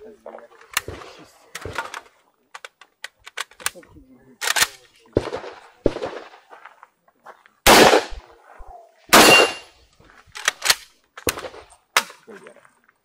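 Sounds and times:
gunshots: 4.4s - 6.5s, 7.6s - 8.3s, 9.1s - 9.7s.

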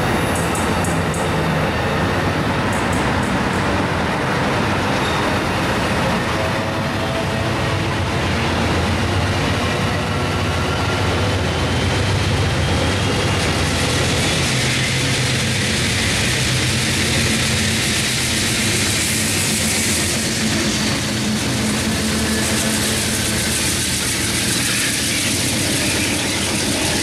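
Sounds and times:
diesel locomotive passing: 0.0s - 27.0s
passenger train rolling past: 0.0s - 27.0s.

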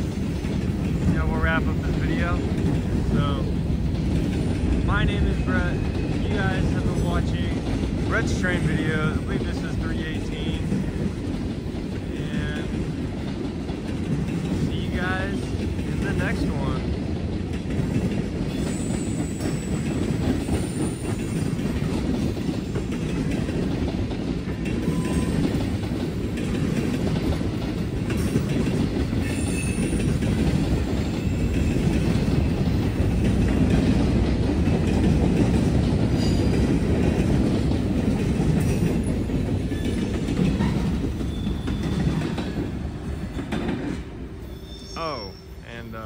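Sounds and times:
freight train cars rumbling: 0.0s - 46.0s
faint wheel squeals: 40.6s - 42.2s, 44.4s - 45.7s.

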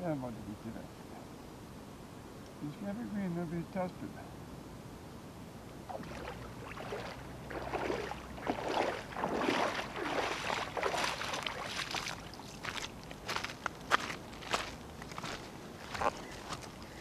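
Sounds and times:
footsteps wading through water: 5.9s - 17.0s.

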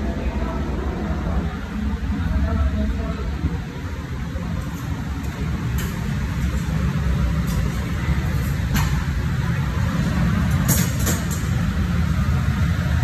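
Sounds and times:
buffet room ambience rumble: 0.0s - 13.0s.

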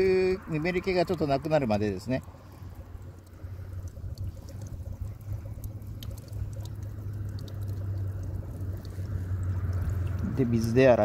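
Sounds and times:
steady low rumble: 0.0s - 11.0s
water trickling from spout: 0.0s - 11.0s.

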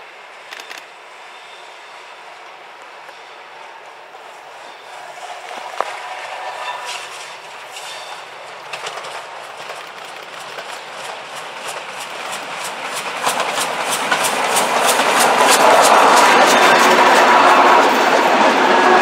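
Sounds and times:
steam locomotive approaching: 0.0s - 19.0s
train wheels clicking: 0.4s - 0.9s, 4.9s - 19.0s.

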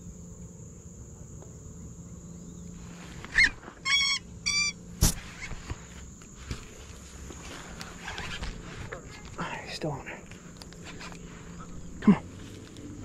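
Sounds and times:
insects droning: 0.0s - 13.0s
bird calling: 1.8s - 4.8s.

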